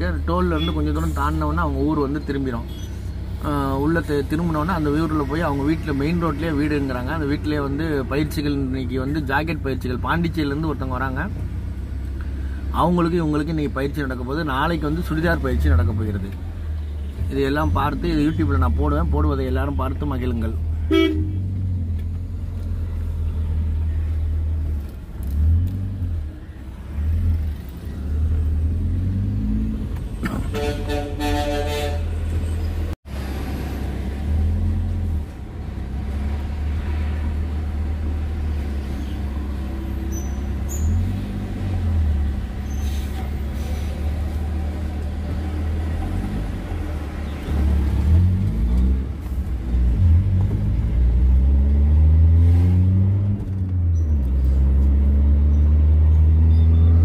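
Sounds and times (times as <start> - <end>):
car engine and tyres rumbling: 0.0 - 57.0
vehicle horn: 20.9 - 21.5, 30.4 - 32.2.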